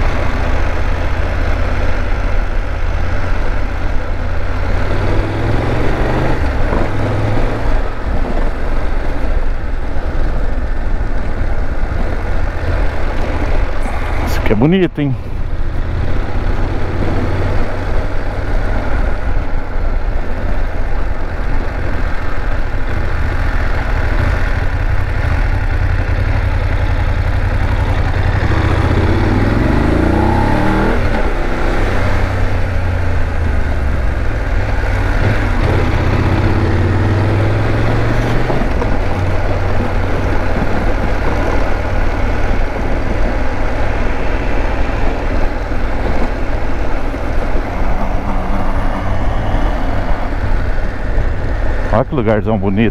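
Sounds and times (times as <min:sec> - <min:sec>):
motorcycle engine running: 0:15.2 - 0:51.9.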